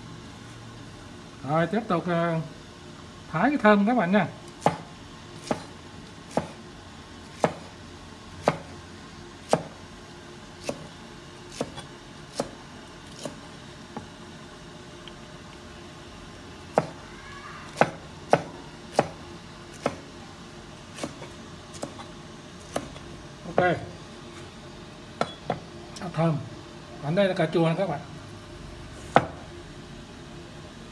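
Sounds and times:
knife chopping on wooden board: 4.6s - 6.6s, 7.3s - 7.7s, 8.4s - 8.8s, 9.4s - 9.8s, 10.6s - 10.9s, 11.5s - 13.4s, 16.7s - 17.0s, 17.7s - 20.0s, 20.9s - 23.8s, 25.2s - 25.7s, 29.0s - 29.4s.

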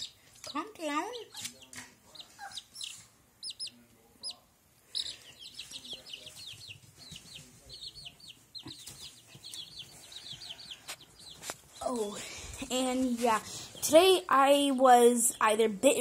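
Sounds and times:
baby chicks peeping: 0.0s - 15.6s.

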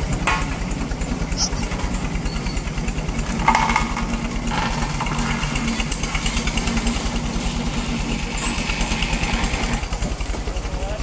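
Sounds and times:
diesel engine chugging: 0.0s - 11.0s.

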